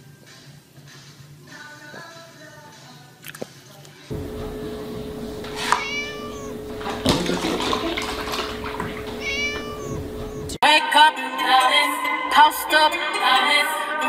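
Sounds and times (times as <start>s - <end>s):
faint steady hum: 4.1s - 10.6s
milk glugging and splashing: 4.2s - 10.4s
kitten meowing: 5.0s - 10.6s.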